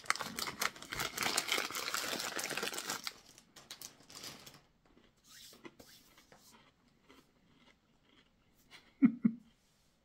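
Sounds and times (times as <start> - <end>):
snack packaging crinkling: 0.0 - 5.1.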